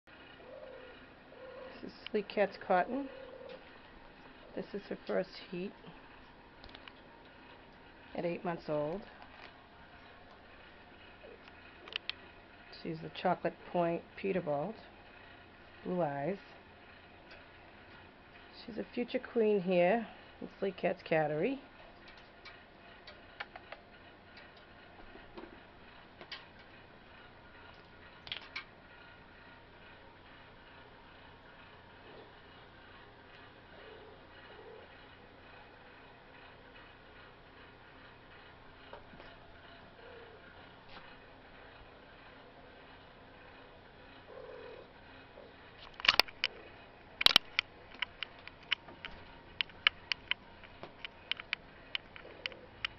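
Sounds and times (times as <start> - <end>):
small sharp clicks and taps: 47.2 - 52.9.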